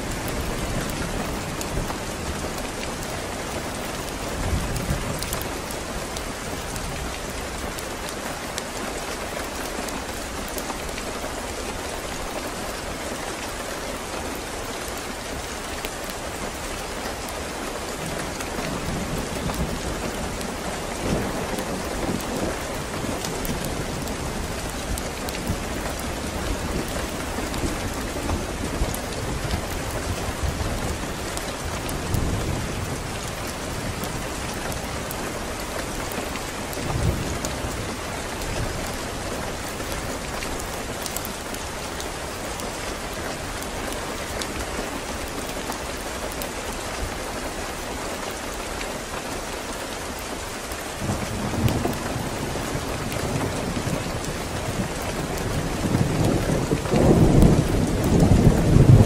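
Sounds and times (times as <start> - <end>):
steady rain: 0.0 - 59.0
distant thunder rumble: 51.0 - 59.0.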